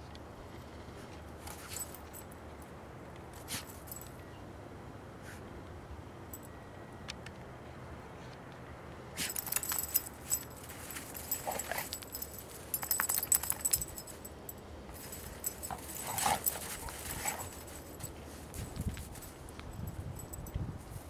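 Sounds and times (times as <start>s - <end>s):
dog collar tags jingling: 9.2s - 21.0s.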